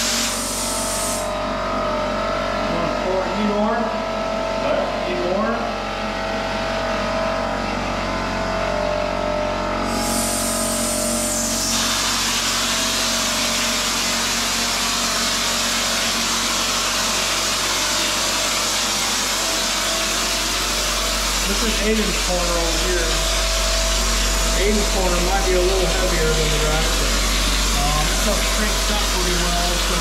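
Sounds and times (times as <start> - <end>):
spray gun hissing: 0.0 - 1.3, 9.9 - 30.0
air compressor running: 0.0 - 30.0.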